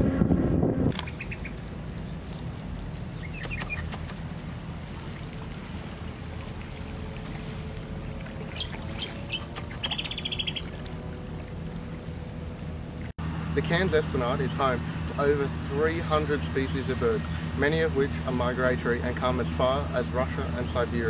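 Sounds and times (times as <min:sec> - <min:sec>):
steady low rumble: 0:00.0 - 0:21.0
birds chirping: 0:00.9 - 0:12.9
bird trill: 0:01.0 - 0:01.6, 0:03.2 - 0:04.0, 0:08.5 - 0:10.8.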